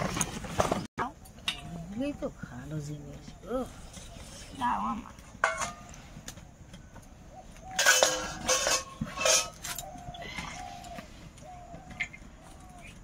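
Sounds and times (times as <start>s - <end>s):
bird calls: 1.7s - 5.3s, 5.9s - 13.0s
metal utensils clinking: 5.4s - 6.0s, 7.7s - 10.0s.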